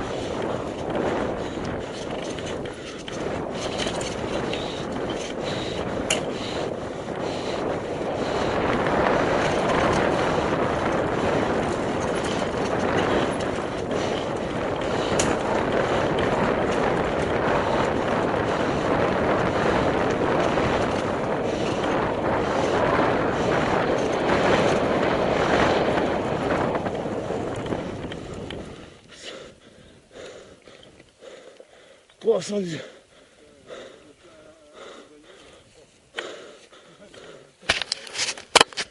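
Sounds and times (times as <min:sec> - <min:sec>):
tyre and wind rush: 0:00.0 - 0:31.4
bike clicks and rattles: 0:00.0 - 0:32.4, 0:35.4 - 0:38.9.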